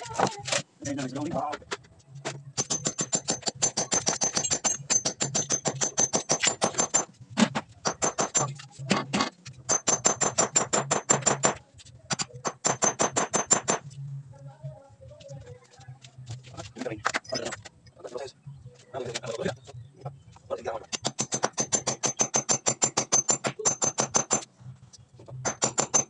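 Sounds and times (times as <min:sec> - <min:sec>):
hammer striking metal: 0:02.6 - 0:07.2.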